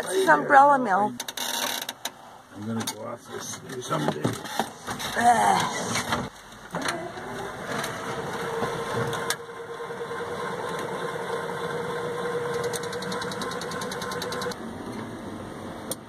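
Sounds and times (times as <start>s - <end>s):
steady hum: 3.1s - 16.0s
van motor running: 4.8s - 16.0s.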